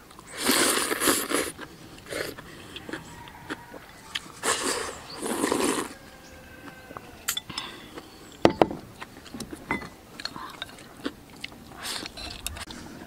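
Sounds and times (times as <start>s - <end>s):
person slurping soup: 0.3s - 6.0s, 11.8s - 13.0s.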